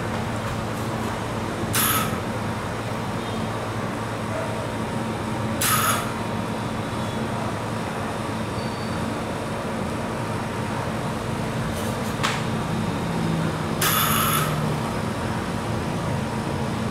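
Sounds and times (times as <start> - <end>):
steady background hum: 0.0 - 16.9.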